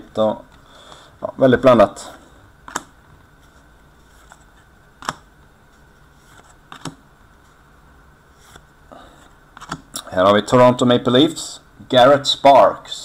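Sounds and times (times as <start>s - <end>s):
trading cards snapping: 2.7s - 2.9s, 5.0s - 5.3s, 6.3s - 7.0s, 9.6s - 10.0s.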